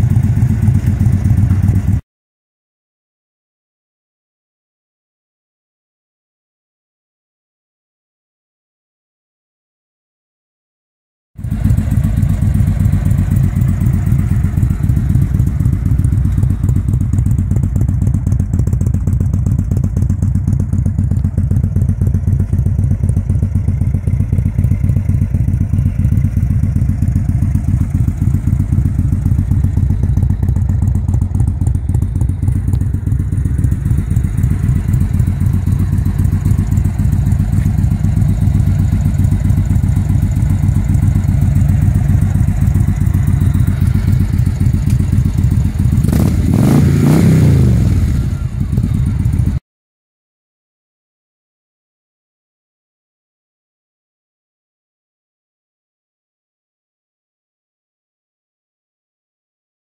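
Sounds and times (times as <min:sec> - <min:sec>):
motorcycle engine idling: 0:00.0 - 0:02.0, 0:11.4 - 0:49.6.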